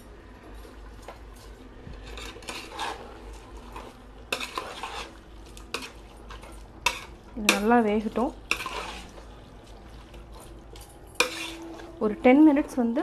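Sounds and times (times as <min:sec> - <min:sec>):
spoon stirring thick mixture: 0:00.8 - 0:13.0
spoon clinking against metal pot: 0:06.8 - 0:08.8, 0:10.4 - 0:12.8.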